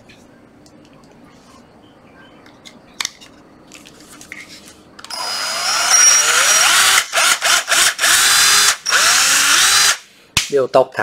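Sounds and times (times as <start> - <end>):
cordless drill motor whining: 5.0 - 10.0.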